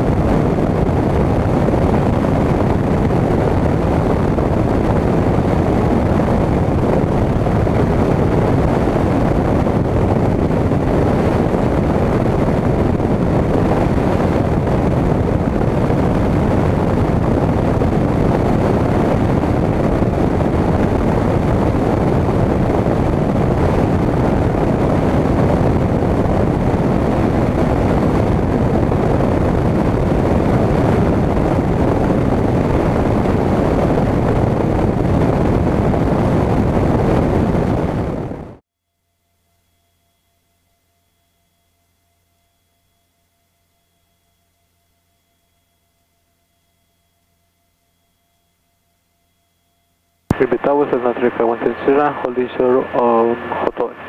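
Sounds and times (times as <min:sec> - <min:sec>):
wind rushing: 0:00.0 - 0:38.6
light plane engine: 0:00.0 - 0:54.0.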